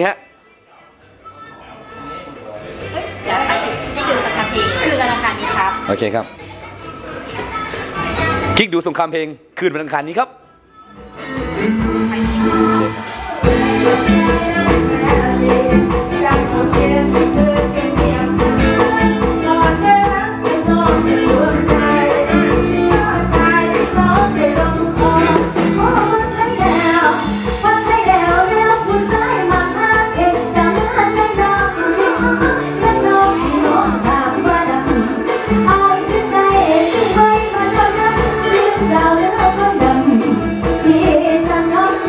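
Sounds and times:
backing track with steady beat: 0:10.4 - 0:42.0
woman singing into microphone: 0:10.7 - 0:42.0.

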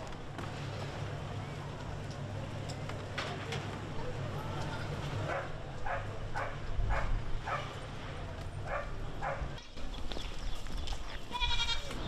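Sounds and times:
dog barking: 0:05.3 - 0:07.8, 0:08.7 - 0:09.5.

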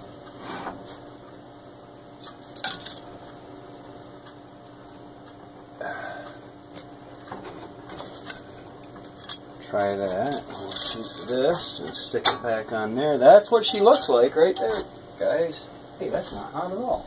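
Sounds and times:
steady low hum: 0:00.0 - 0:17.0
metal utensils knocking on cookware: 0:10.3 - 0:12.7, 0:13.5 - 0:14.8.

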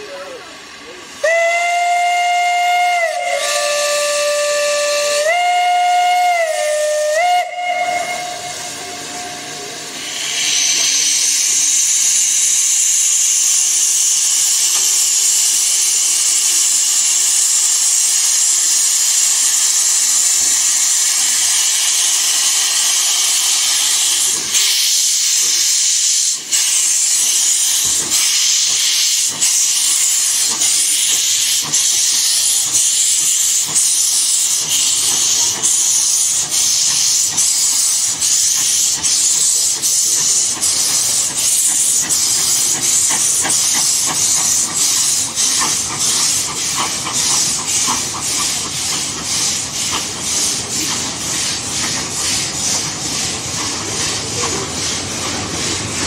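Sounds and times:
steam hissing: 0:00.0 - 0:56.0
steam locomotive whistle: 0:01.2 - 0:13.6.

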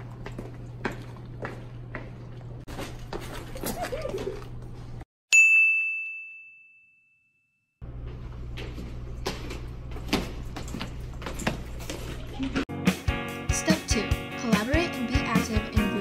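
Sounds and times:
footsteps on hard floor: 0:00.0 - 0:03.6, 0:08.0 - 0:12.6
low hallway hum: 0:00.0 - 0:05.0, 0:07.8 - 0:12.7
bright bell ding: 0:05.3 - 0:07.7.

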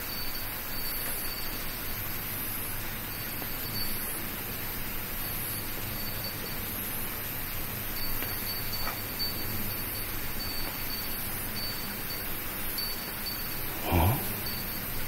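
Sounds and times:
night ambience hiss: 0:00.0 - 0:15.0
faint high tone: 0:13.7 - 0:14.6.

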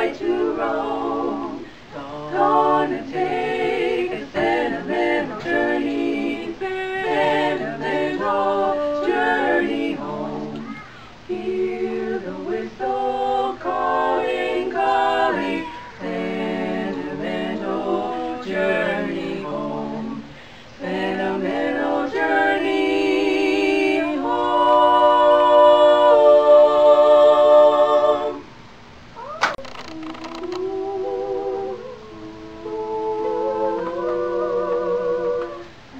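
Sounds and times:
women singing a cappella: 0:00.0 - 0:28.6, 0:30.0 - 0:35.9.

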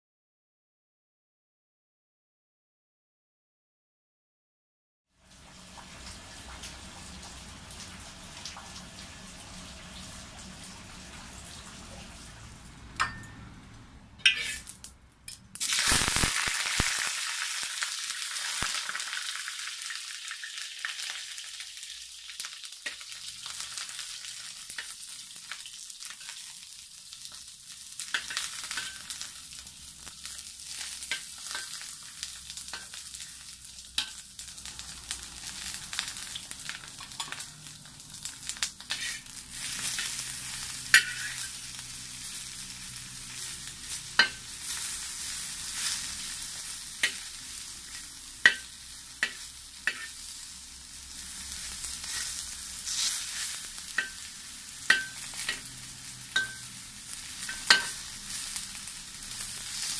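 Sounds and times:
eggplant sizzling in oil: 0:05.2 - 0:13.6, 0:14.2 - 0:59.9
metal spatula scraping a wok: 0:14.2 - 0:14.7, 0:28.1 - 0:29.2, 0:38.8 - 0:42.7, 0:47.9 - 0:50.2, 0:51.6 - 0:56.7.

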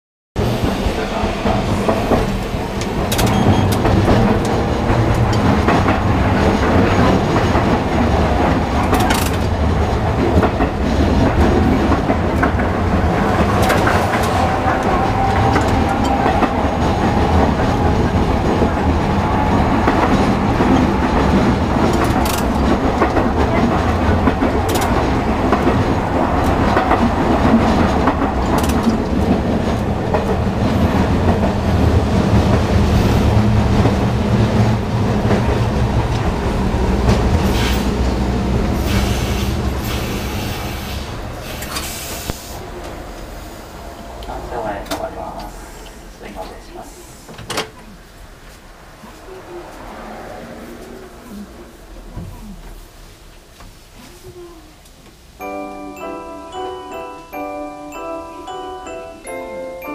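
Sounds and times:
rail joint clicks: 0:00.4 - 0:47.9
streetcar wheels and motor rumble: 0:00.4 - 0:55.4.

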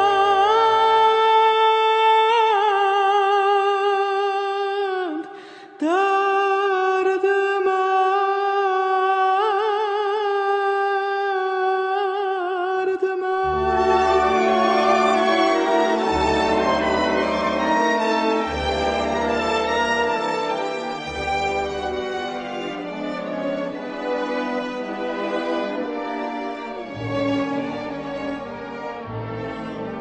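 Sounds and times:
man singing long high note: 0:13.4 - 0:20.7
orchestra playing: 0:13.4 - 0:30.0.

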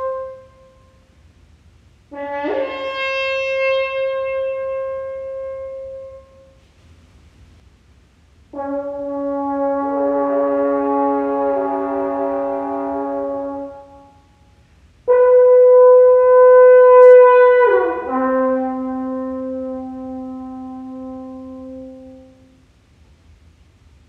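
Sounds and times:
french horn playing: 0:00.0 - 0:01.0, 0:02.1 - 0:06.6, 0:08.5 - 0:14.3, 0:15.1 - 0:22.6.

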